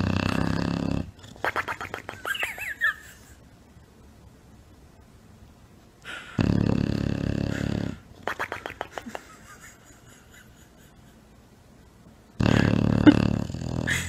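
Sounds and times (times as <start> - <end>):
dog snoring: 0.0 - 1.4, 6.2 - 8.0, 12.4 - 14.0.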